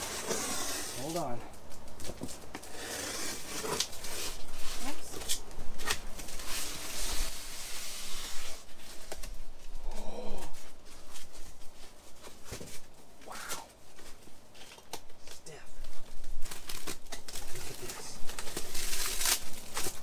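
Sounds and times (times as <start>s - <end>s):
cardboard and styrofoam rustling: 0.0s - 20.0s.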